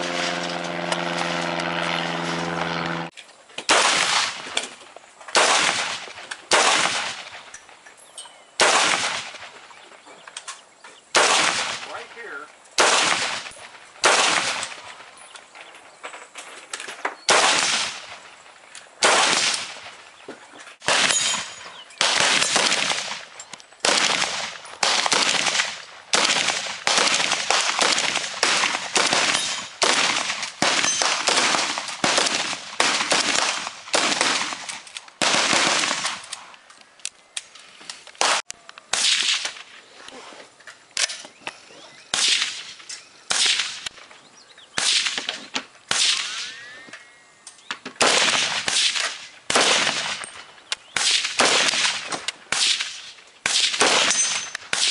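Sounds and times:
rifle shots with echo: 3.7 - 4.6, 5.3 - 7.5, 8.6 - 9.5, 11.1 - 15.1, 17.3 - 18.3, 19.0 - 20.0, 20.8 - 36.5, 42.1 - 44.0, 44.8 - 46.6, 48.0 - 50.3, 50.9 - 54.9.

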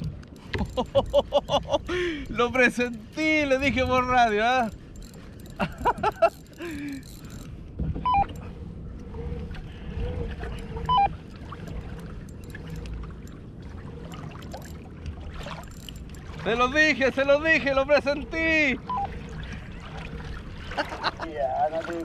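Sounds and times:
water and wind noise: 0.0 - 22.0
fishing reel clicking: 1.8 - 7.5, 14.4 - 14.8, 15.6 - 16.2.

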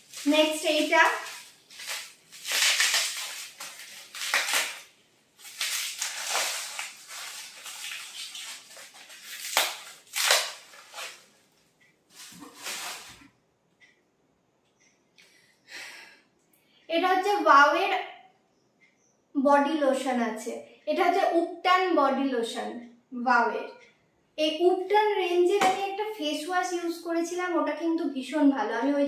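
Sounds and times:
plastic wrapping crinkling: 0.0 - 13.2.

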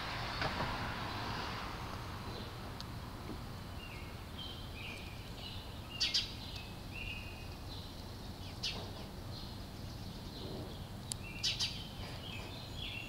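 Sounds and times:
songbirds chirping: 0.0 - 13.0.

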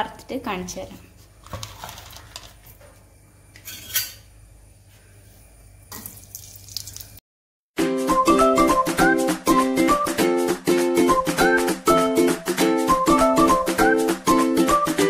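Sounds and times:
cookware clattering: 3.6 - 4.3
kitchen handling noise: 3.6 - 4.3
ukulele music: 7.8 - 15.0.

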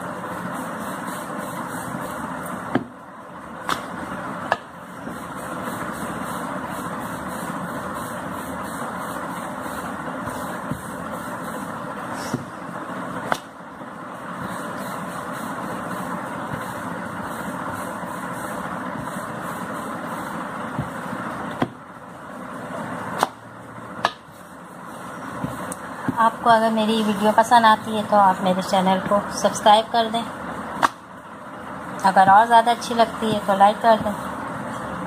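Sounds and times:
rolling pin rolling dough: 0.0 - 35.0
rolling pin knocking on board: 2.7 - 3.0, 20.7 - 21.8.

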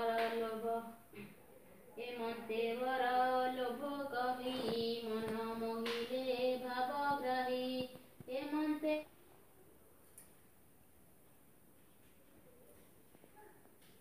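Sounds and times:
woman singing unaccompanied: 0.0 - 1.0, 2.0 - 9.1.

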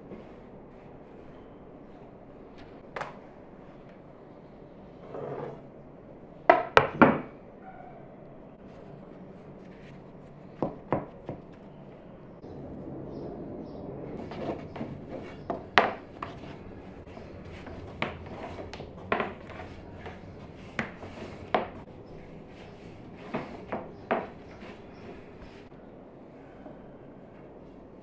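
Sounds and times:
rolling pin rubbing over dough: 14.2 - 25.7.

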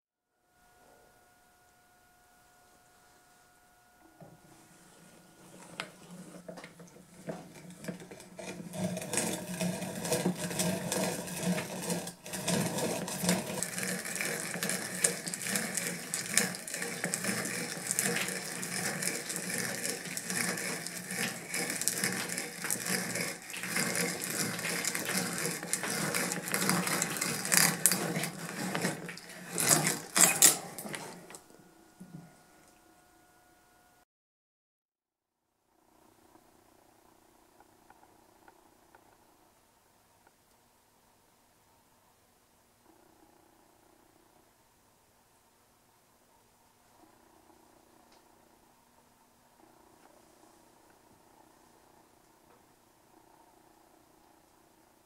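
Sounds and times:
hand brace bit boring into wood: 5.5 - 31.5.

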